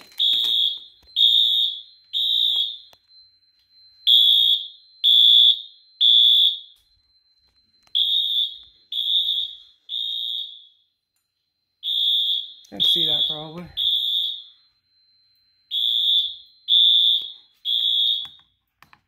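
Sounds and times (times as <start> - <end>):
fire alarm horn beeps: 0.0 - 18.6
faint steady high tone: 12.6 - 13.8.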